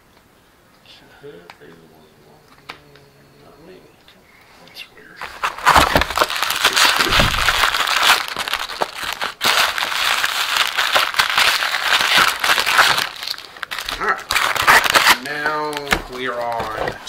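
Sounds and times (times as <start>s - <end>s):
card packs rustling: 5.0s - 17.0s
plastic wrapping crinkling: 5.2s - 17.0s.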